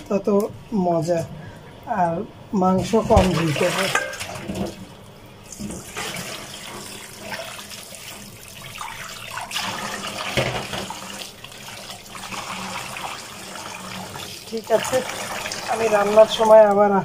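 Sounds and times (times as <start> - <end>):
tap water splashing into steel bowl: 3.1 - 4.8, 9.3 - 11.2.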